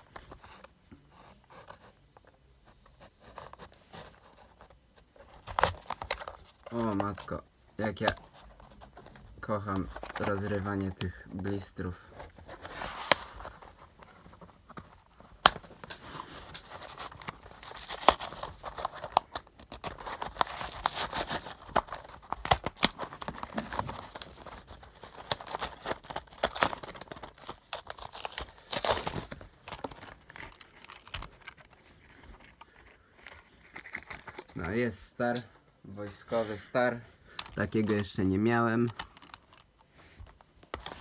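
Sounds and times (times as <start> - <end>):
plastic blister packs tearing: 5.2 - 8.2, 15.0 - 34.7.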